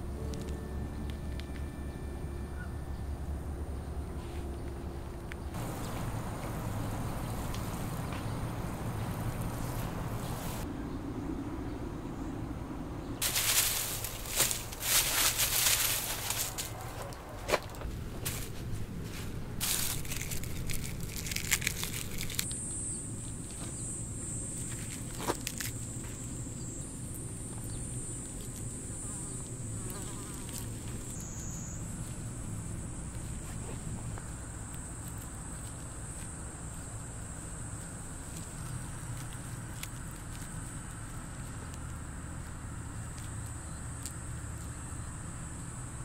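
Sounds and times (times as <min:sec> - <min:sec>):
insects chirring: 0:05.5 - 0:10.6, 0:13.2 - 0:18.5, 0:19.6 - 0:46.0
gloved hands rustling in soil: 0:05.6 - 0:10.6, 0:13.2 - 0:22.6, 0:24.5 - 0:26.5.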